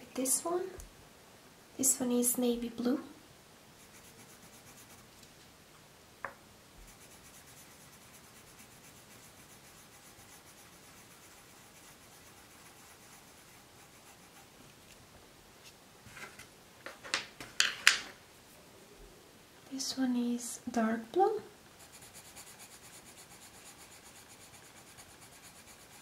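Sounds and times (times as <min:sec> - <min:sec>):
pencil scribbling on paper: 0:03.8 - 0:05.0, 0:06.9 - 0:14.5, 0:21.8 - 0:26.0.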